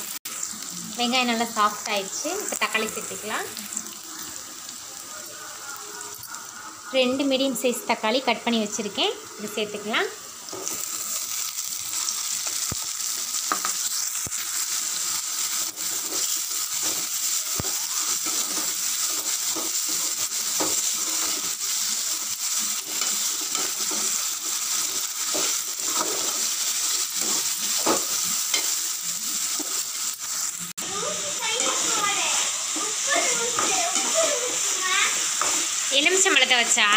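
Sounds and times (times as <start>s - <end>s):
vegetables sizzling in hot oil: 0.0s - 36.9s
metal spoon scraping pan: 22.8s - 28.8s.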